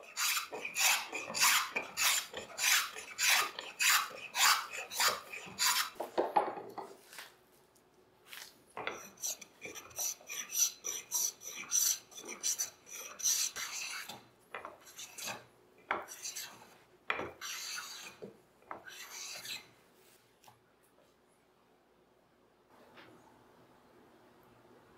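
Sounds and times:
hand tool shaving wood: 0.0s - 6.2s.

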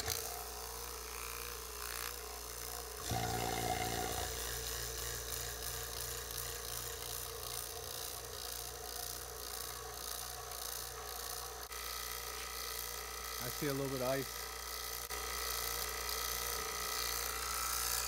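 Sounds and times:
vacuum pump humming: 0.0s - 18.0s.

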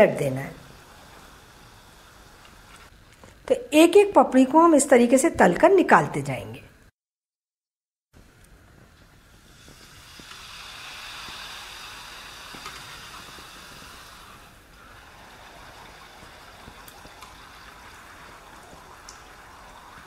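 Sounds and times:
oil sizzling deep-frying: 0.1s - 3.5s, 8.2s - 20.0s.

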